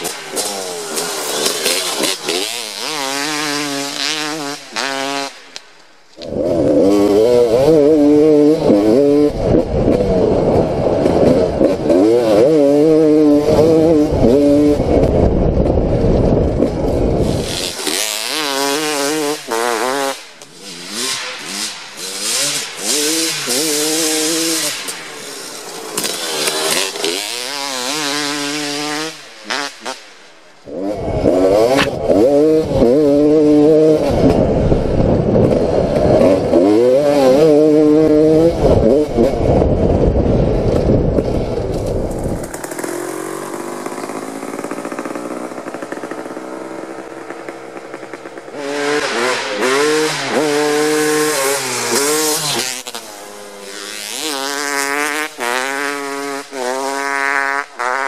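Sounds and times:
dirt bike engine revving: 0.0 - 58.0
wind rumble: 13.4 - 17.8, 34.0 - 36.6, 38.3 - 45.9.

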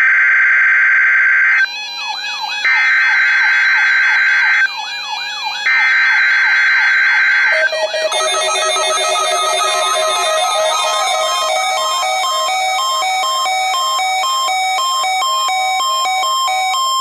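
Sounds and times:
high alarm beep tone: 7.4 - 14.4.

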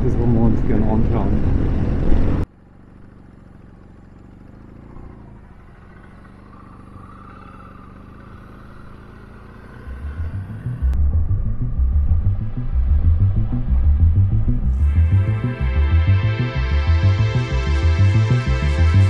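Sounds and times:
motorcycle engine drone: 0.0 - 19.0
pulsing background music beat: 10.0 - 19.0.

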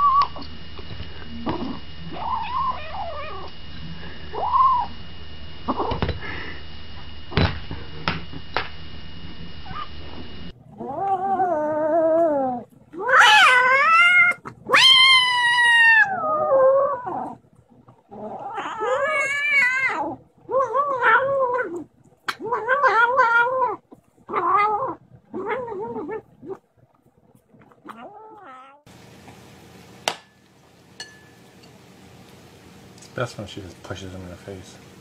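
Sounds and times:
kitten growl-yowling: 0.0 - 0.5, 1.4 - 5.0, 10.7 - 17.4, 18.1 - 26.6, 27.8 - 28.9.

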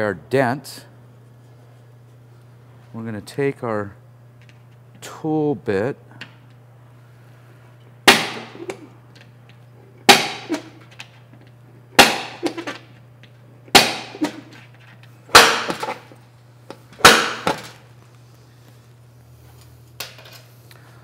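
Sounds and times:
tool striking metal with rattle: 10.1 - 10.7, 15.3 - 16.0.

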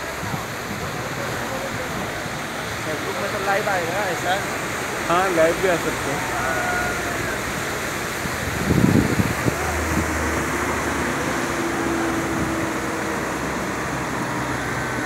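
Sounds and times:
floodwater rushing: 0.0 - 15.0
bus engine humming: 3.8 - 15.0.

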